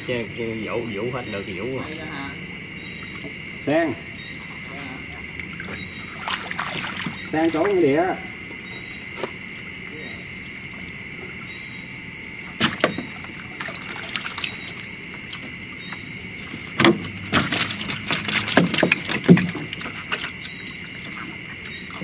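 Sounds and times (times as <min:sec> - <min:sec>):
crickets chirring: 0:00.0 - 0:22.0
water splashing from net: 0:05.4 - 0:07.9, 0:12.5 - 0:15.6, 0:16.3 - 0:22.0
net pole knocking on boat: 0:16.8 - 0:20.2.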